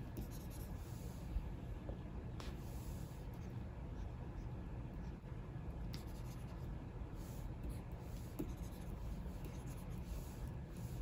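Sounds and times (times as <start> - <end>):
stylus scratching on screen: 0.0 - 1.2, 5.9 - 11.0
low steady rumble: 0.0 - 11.0.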